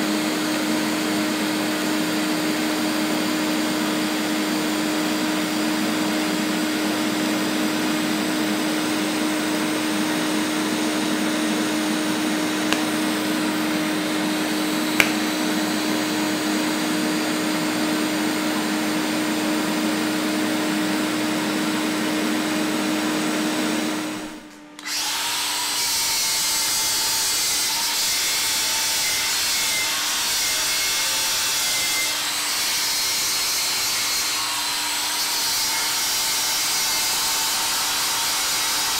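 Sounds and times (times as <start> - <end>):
angle grinder grinding metal: 7.2 - 17.7, 24.8 - 38.9.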